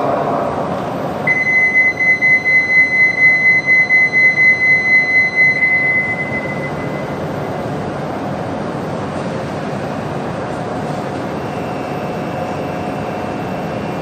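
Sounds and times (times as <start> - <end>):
steady background hum: 0.0 - 14.0
electronic departure bell tone: 1.2 - 7.8.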